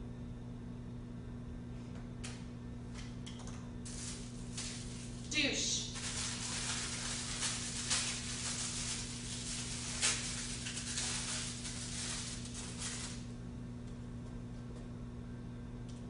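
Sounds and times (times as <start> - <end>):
steady electrical hum: 0.0 - 16.0
plastic wrapping crinkling: 3.8 - 13.3.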